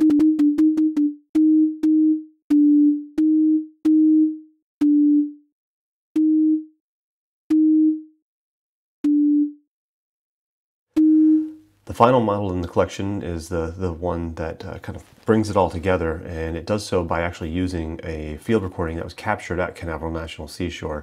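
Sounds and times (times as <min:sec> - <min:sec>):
two-pitch sine beeps: 0:09.1 - 0:09.6, 0:11.0 - 0:11.6.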